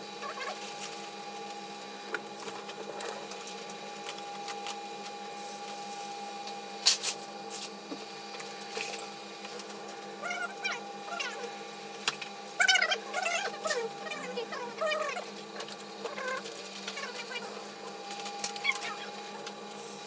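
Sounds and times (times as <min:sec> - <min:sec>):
machine hum with held tone: 0:00.0 - 0:20.0
flux hissing on solder: 0:05.4 - 0:07.6.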